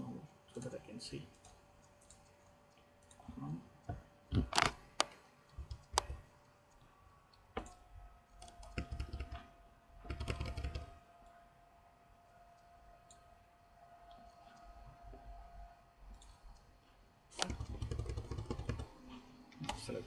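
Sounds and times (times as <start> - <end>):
faint steady hum: 0.0 - 20.0
keyboard keys clicking: 7.6 - 7.8, 8.4 - 9.4, 10.1 - 10.9, 17.4 - 18.9.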